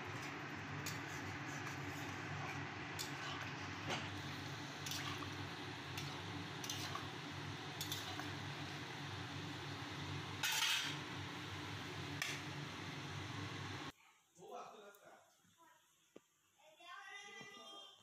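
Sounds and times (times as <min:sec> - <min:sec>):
steady low hum: 0:00.0 - 0:13.9.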